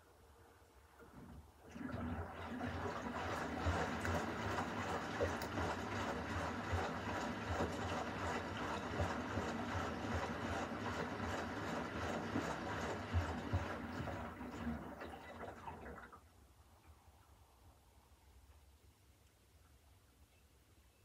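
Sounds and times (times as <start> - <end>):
washing machine low rumble: 0.0 - 16.3
water sloshing in washing machine: 0.9 - 16.3.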